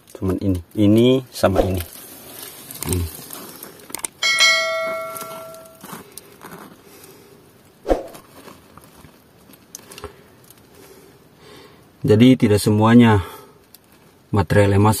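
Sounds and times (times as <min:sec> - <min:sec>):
notification bell chime: 0:04.2 - 0:05.8.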